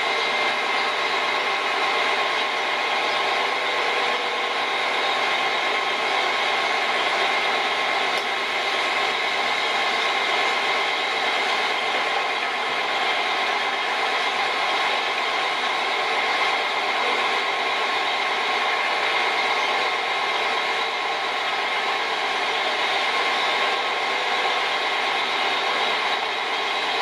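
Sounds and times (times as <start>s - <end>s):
machinery droning: 0.0s - 27.0s.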